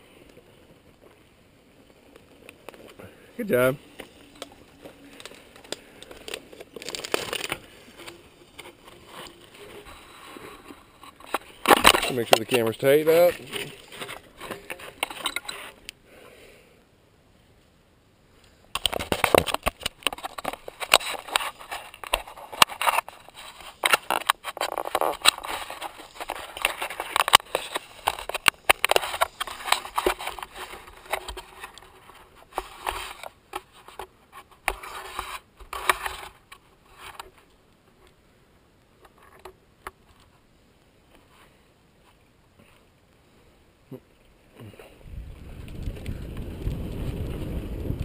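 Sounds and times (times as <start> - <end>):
camera rattling in its case: 3.8 - 15.8, 18.8 - 37.4.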